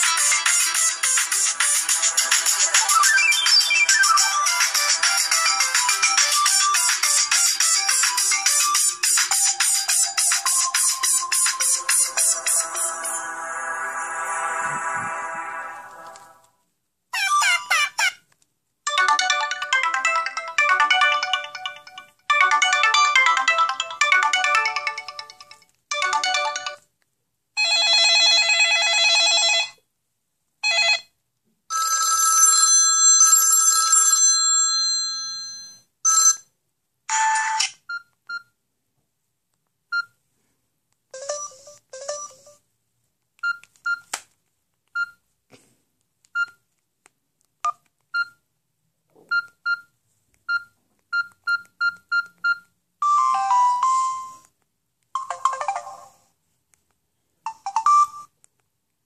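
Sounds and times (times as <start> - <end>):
mobile phone ring tones: 27.6 - 29.8, 31.7 - 36.5, 41.2 - 42.6.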